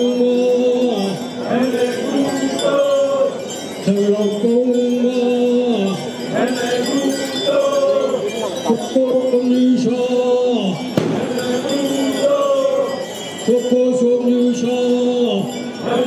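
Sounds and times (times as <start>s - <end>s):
group of voices chanting: 1.4s - 3.6s, 6.3s - 8.8s, 11.0s - 13.2s.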